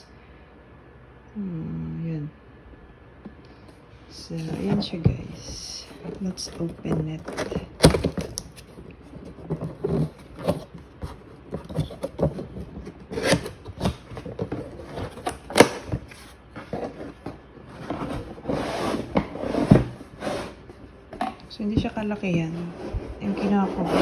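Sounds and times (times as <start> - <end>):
cardboard box being opened: 5.9 - 20.6.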